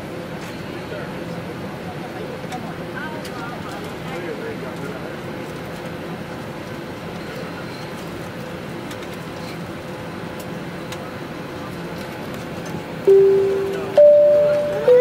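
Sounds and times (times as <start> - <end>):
faint steady tone: 13.1 - 15.0.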